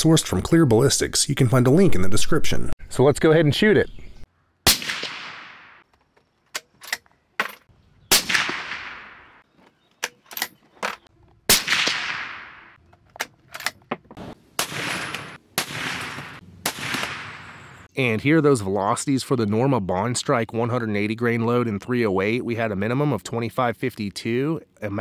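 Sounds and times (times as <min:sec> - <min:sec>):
rifle shots with rolling echo: 0:04.7 - 0:05.8, 0:08.1 - 0:09.4, 0:11.5 - 0:12.8, 0:14.6 - 0:17.9.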